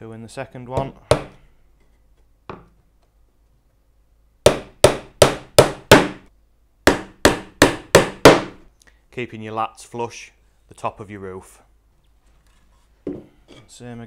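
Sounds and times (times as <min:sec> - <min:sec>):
hammer striking nails into wood: 0:00.8 - 0:01.4, 0:04.4 - 0:06.2, 0:06.8 - 0:08.6.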